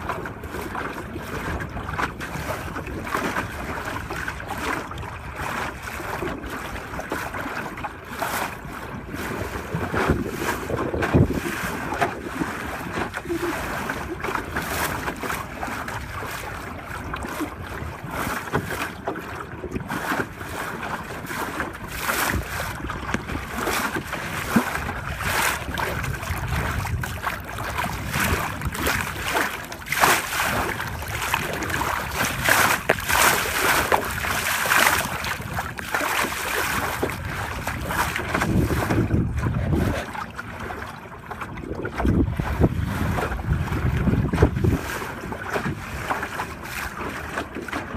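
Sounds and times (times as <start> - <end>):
water splashing along boat hull: 0.0 - 47.9
wind gusting on microphone: 9.3 - 13.5, 22.1 - 29.4, 36.7 - 40.2, 41.6 - 45.8.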